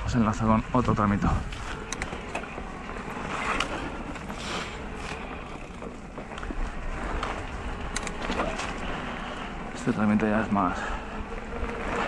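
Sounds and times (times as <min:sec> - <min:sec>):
bike rattling: 0:00.0 - 0:12.0
bike tyres rolling on dirt: 0:00.0 - 0:12.0.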